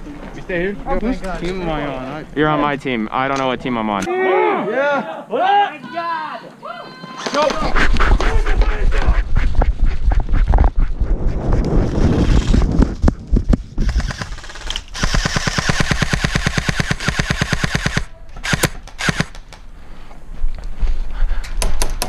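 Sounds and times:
airsoft rifle full-auto burst: 13.8s - 19.4s.

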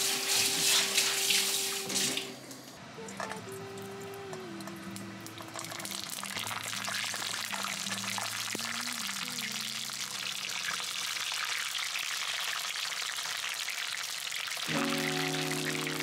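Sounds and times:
hot oil sizzling and crackling: 5.3s - 16.0s.

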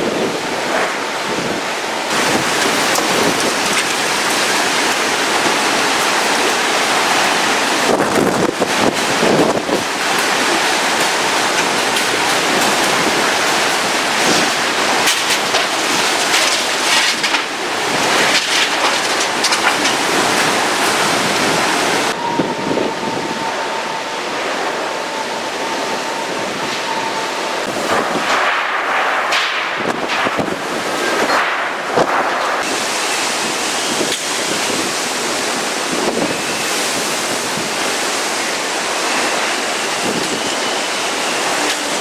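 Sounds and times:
hurricane wind and rain: 0.0s - 42.0s
wind gusts hitting microphone: 0.0s - 42.0s
steady high tone: 21.8s - 27.9s.

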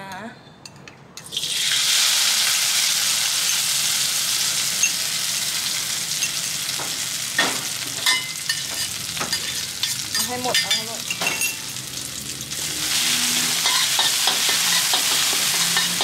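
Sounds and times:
chilies sizzling in hot oil: 1.2s - 16.0s
metal spatula scraping wok: 12.6s - 16.0s.

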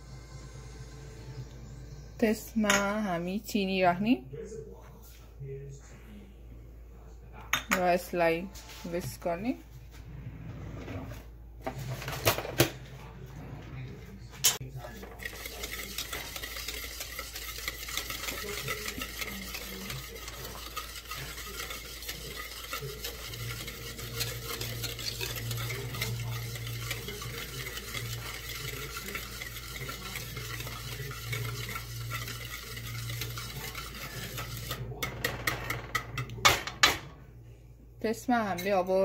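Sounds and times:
whisk scraping against bowl: 14.5s - 37.0s.

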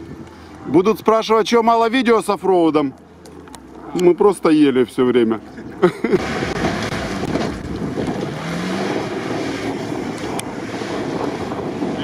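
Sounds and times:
off-road vehicle engine running: 0.0s - 12.0s
wind buffeting microphone: 5.4s - 12.0s.

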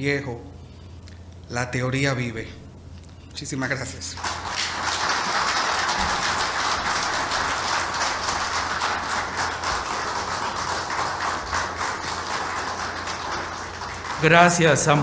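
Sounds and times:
audience applauding: 4.2s - 15.0s.

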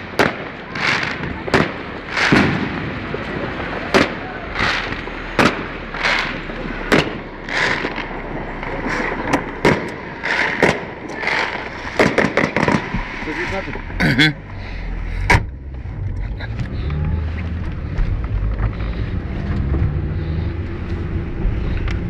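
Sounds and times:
fireworks bangs and crackling: 0.0s - 22.0s.

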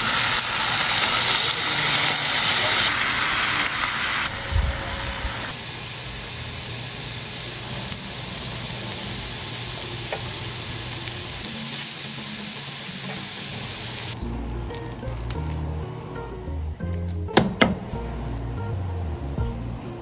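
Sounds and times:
chicken sizzling on grill pan: 0.0s - 15.6s.

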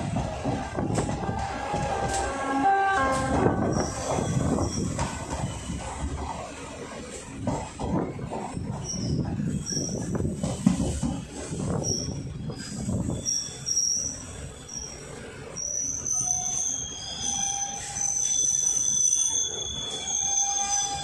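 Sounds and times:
train wheels rumbling on track: 0.0s - 21.0s
high-pitched wheel squeal: 0.8s - 5.9s, 8.8s - 10.7s, 11.8s - 21.0s.

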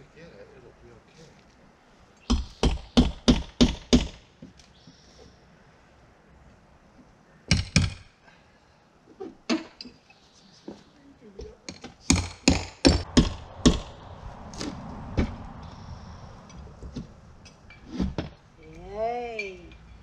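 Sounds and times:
hammer knocking on wood siding: 2.3s - 4.2s, 11.7s - 13.9s.

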